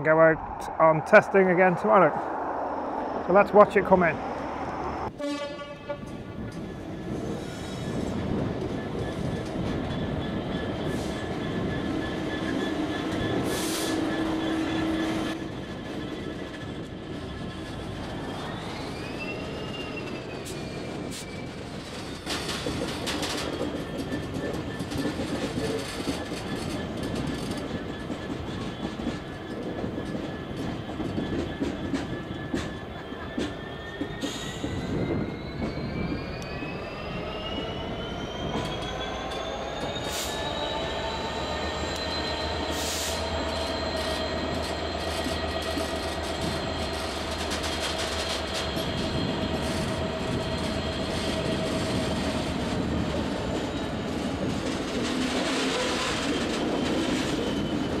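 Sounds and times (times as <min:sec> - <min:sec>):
low hum: 0:00.0 - 0:05.1
high whine: 0:00.0 - 0:05.2
train rumbling over rails: 0:00.0 - 0:58.0.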